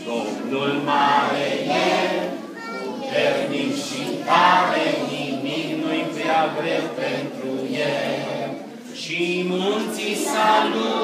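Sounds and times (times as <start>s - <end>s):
children singing unaccompanied: 0.0s - 8.7s, 9.3s - 11.0s
man leading singing: 9.0s - 11.0s.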